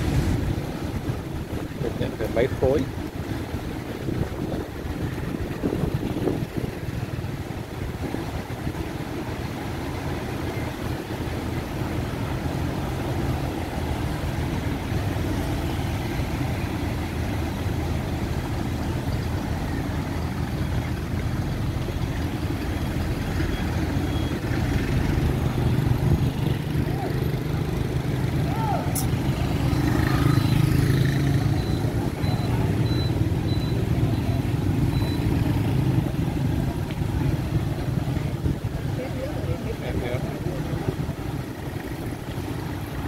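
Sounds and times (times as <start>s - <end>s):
fire truck engine running: 0.0s - 29.4s.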